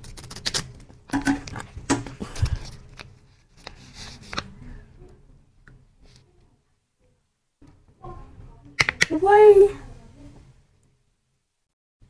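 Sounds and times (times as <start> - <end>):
scissors snipping plastic: 0.0 - 1.7.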